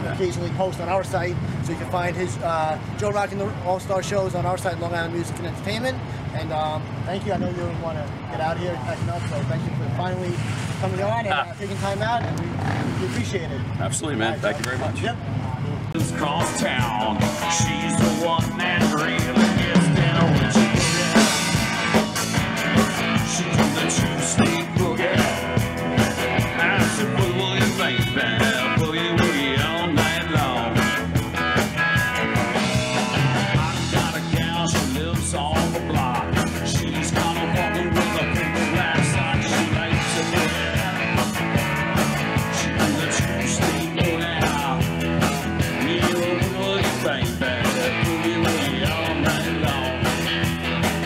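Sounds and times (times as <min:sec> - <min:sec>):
live rock band playing: 0:15.9 - 0:51.0
person singing: 0:16.0 - 0:22.4, 0:23.0 - 0:25.6, 0:26.4 - 0:31.0, 0:32.6 - 0:41.4, 0:42.3 - 0:50.3.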